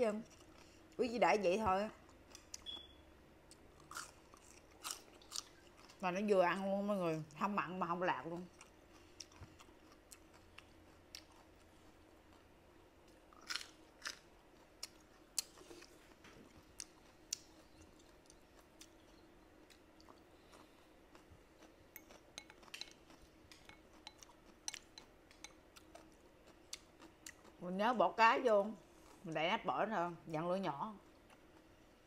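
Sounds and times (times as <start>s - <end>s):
faint steady hum: 0.0s - 32.0s
person chewing and crunching food: 0.2s - 1.0s, 2.0s - 6.0s, 8.4s - 27.6s, 28.8s - 29.3s, 31.0s - 32.0s.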